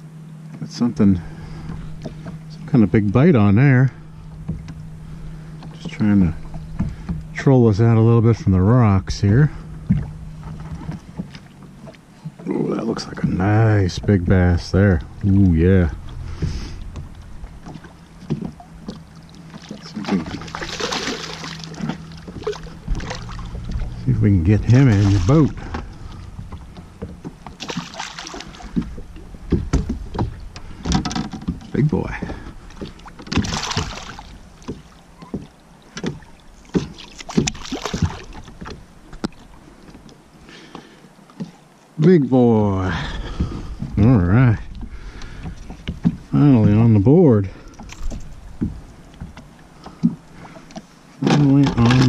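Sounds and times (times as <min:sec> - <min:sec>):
steady low hum: 0:00.0 - 0:52.0
short knocks: 0:04.2 - 0:08.1, 0:09.6 - 0:12.5, 0:15.0 - 0:39.4
fish splashing at water surface: 0:16.2 - 0:24.0, 0:24.9 - 0:31.0, 0:32.3 - 0:35.0, 0:36.0 - 0:38.7.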